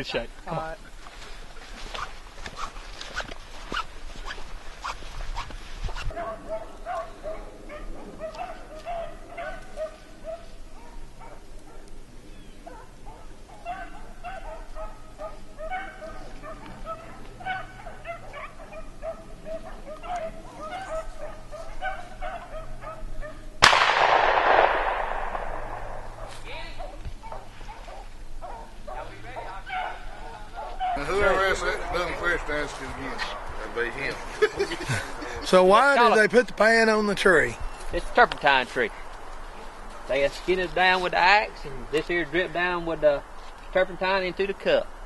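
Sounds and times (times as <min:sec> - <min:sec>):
dogs yipping and baying: 0:06.0 - 0:23.6, 0:26.2 - 0:32.5
gunshot with echo: 0:23.6 - 0:26.4.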